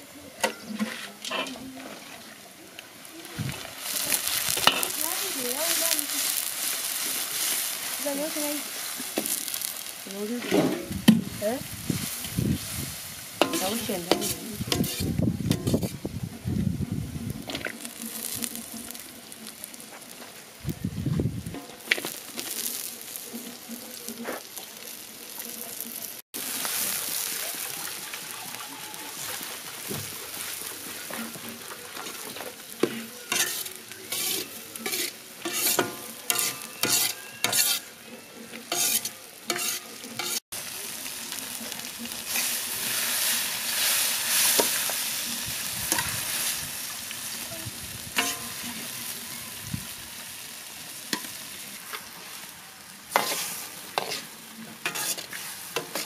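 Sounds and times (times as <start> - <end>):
vegetables sizzling in oil: 0.0 - 56.0
ladle scraping a wok: 0.5 - 2.3, 3.5 - 16.4, 26.6 - 40.4, 42.1 - 47.4, 48.0 - 52.5, 53.1 - 56.0.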